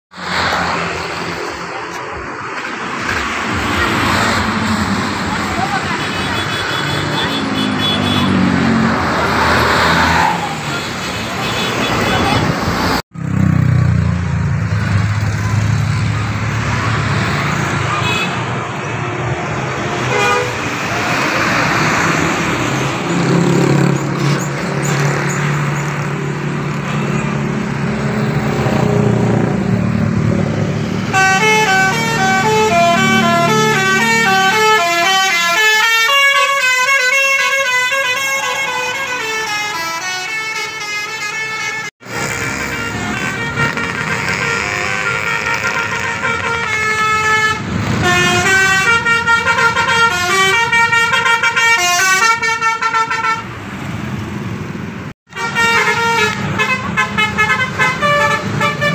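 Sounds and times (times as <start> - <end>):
road traffic: 0.1 - 58.9
bus horn playing a melody: 5.8 - 8.4, 18.0 - 18.5, 20.0 - 20.6, 31.0 - 53.5, 55.3 - 58.9.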